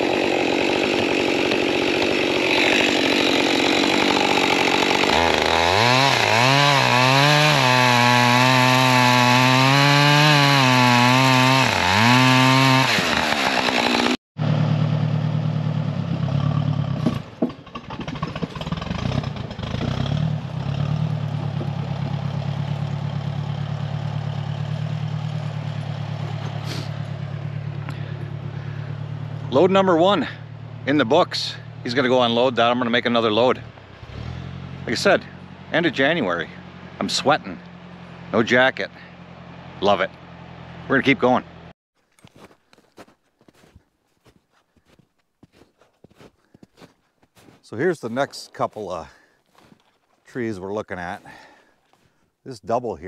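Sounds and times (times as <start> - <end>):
tractor engine running: 0.0 - 9.5, 10.7 - 41.7
chainsaw cutting wood: 0.0 - 31.9.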